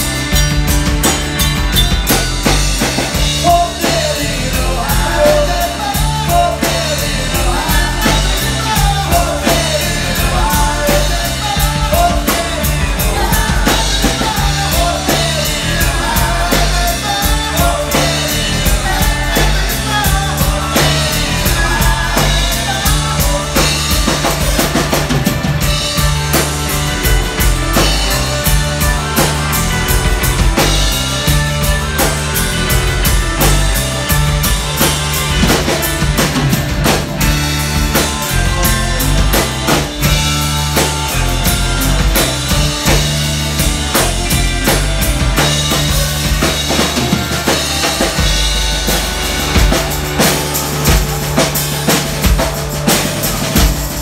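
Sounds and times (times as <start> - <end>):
drum kit steady beat: 0.0 - 54.0
electric guitars: 0.0 - 54.0.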